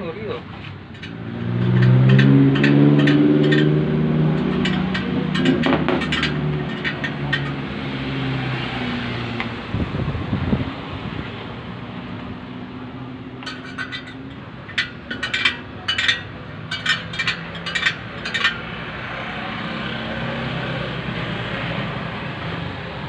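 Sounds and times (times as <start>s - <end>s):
metallic clicks from wheel spokes: 0.9s - 7.8s, 13.4s - 18.8s.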